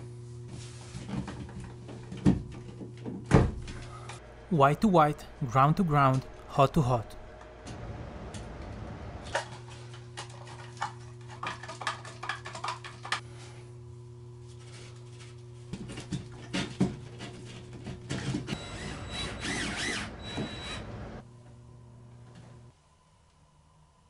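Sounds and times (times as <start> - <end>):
steady low hum: 3.6 - 11.3
cordless drill whining: 18.6 - 20.8.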